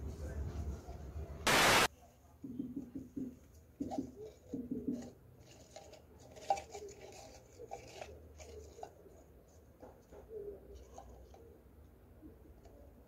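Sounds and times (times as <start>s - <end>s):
plastic jar rustling and crinkling: 3.8s - 11.6s.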